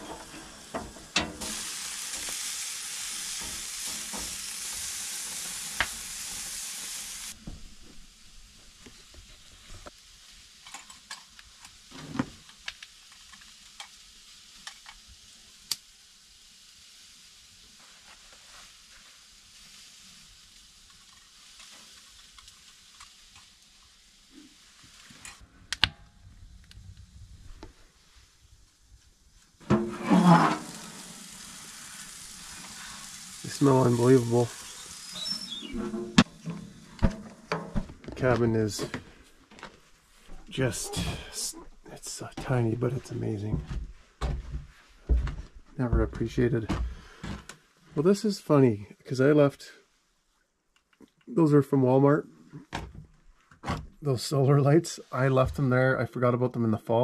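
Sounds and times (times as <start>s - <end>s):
meat sizzling in a pan: 0.0s - 25.4s, 29.6s - 37.8s.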